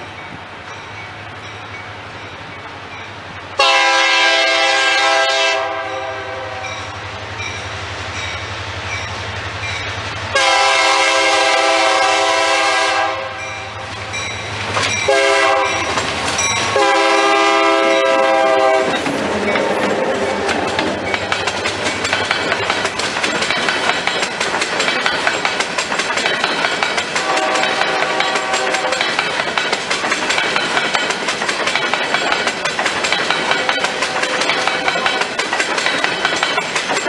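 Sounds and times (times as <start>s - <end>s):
locomotive horn: 3.6s - 6.9s, 10.3s - 13.9s, 15.1s - 16.0s, 16.7s - 19.0s, 27.2s - 29.0s
locomotive engine running: 13.7s - 37.0s
train wheels clacking on rails: 13.8s - 37.0s.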